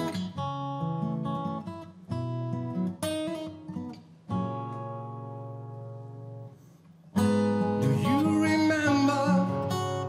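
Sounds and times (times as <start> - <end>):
acoustic guitar strumming: 0.0 - 10.0
man singing: 7.8 - 10.0.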